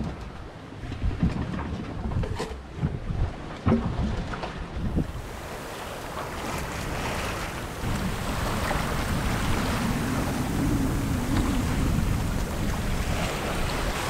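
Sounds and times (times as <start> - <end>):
wind buffeting microphone: 0.0 - 14.0
ocean waves rushing: 4.9 - 14.0.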